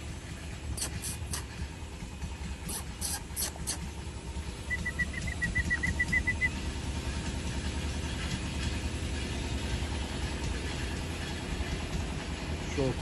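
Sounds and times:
steady low rumble: 0.0s - 13.0s
run of even high peeps: 4.7s - 6.6s.

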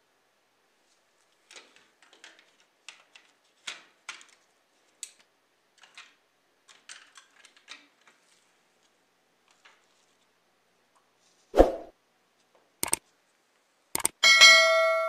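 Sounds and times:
plastic model parts clicking: 1.4s - 4.4s, 5.0s - 8.2s.

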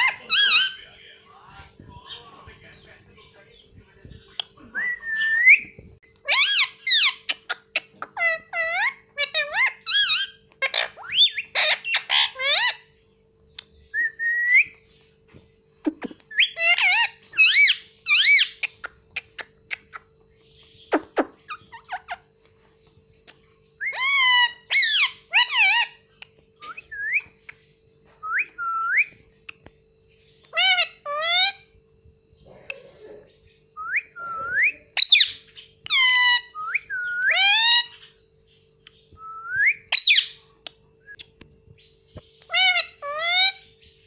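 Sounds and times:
parakeet whistling and calling: 0.0s - 1.0s, 4.8s - 13.0s, 13.7s - 14.9s, 16.0s - 22.3s, 23.7s - 29.3s, 30.1s - 31.7s, 33.7s - 44.0s.

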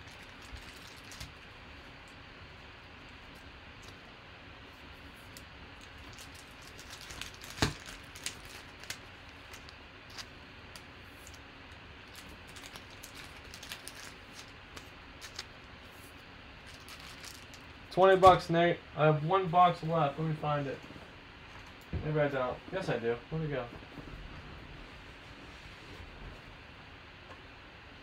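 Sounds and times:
small objects clicking and rustling: 16.7s - 17.7s.

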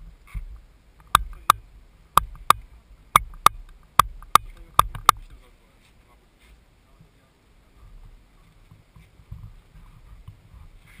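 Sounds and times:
paintball marker shots: 1.0s - 1.6s, 2.2s - 5.2s.

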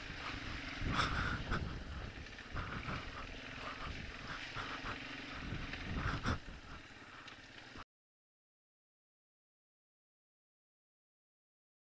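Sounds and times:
quad engine running: 0.0s - 7.8s.

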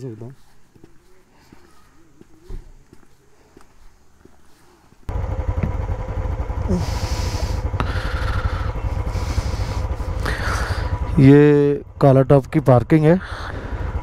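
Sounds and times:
loud low rumble: 5.1s - 12.3s.

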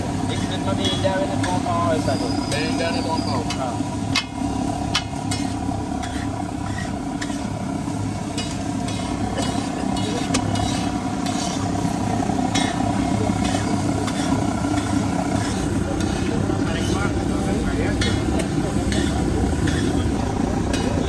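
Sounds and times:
oil sizzling on a griddle: 0.0s - 21.0s
steady low hum: 0.0s - 21.0s
metal utensils scraping a griddle: 0.2s - 4.3s, 4.9s - 7.6s, 8.2s - 11.9s, 12.5s - 20.1s.

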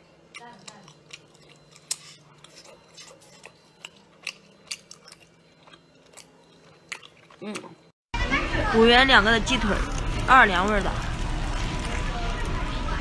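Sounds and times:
person chewing: 0.0s - 7.9s.

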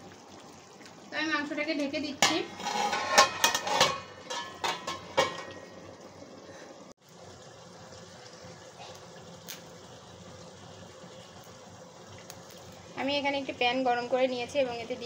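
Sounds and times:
glass lid clinking on pot: 2.2s - 5.7s
faint steady hiss: 3.4s - 15.0s.

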